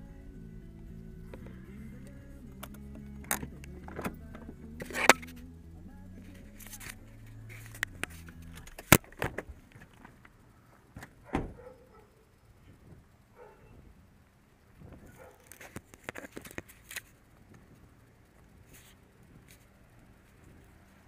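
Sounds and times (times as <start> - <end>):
low music: 0.0 - 8.9.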